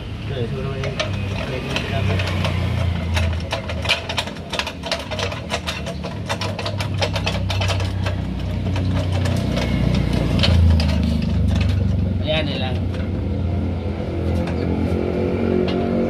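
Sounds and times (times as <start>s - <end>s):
metallic clicking of hand tools: 0.8s - 12.0s.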